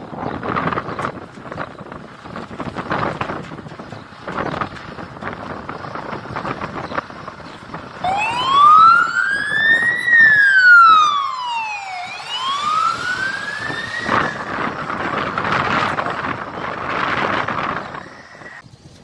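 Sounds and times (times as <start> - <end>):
truck engine running: 0.0 - 19.0
fire engine siren wailing: 7.0 - 18.6.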